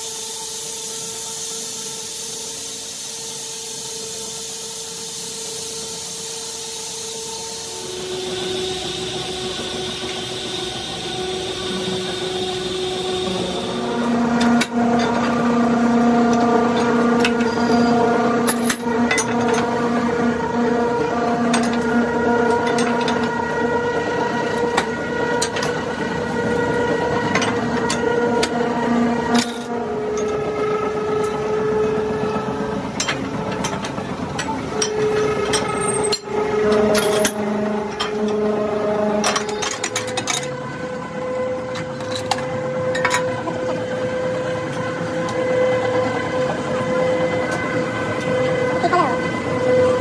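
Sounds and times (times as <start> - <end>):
spanner clanking on metal: 16.3 - 19.7, 33.0 - 38.4.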